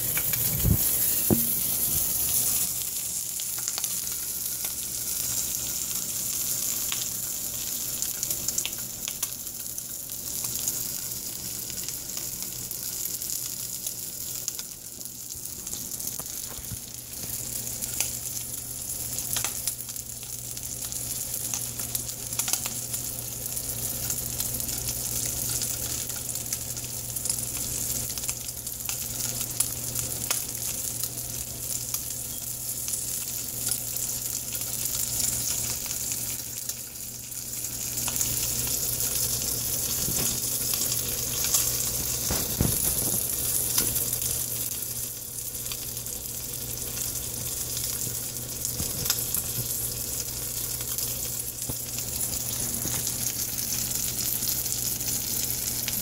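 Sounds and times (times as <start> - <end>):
steady low hum: 0.0 - 7.6
bacon sizzling in a frying pan: 0.0 - 56.0.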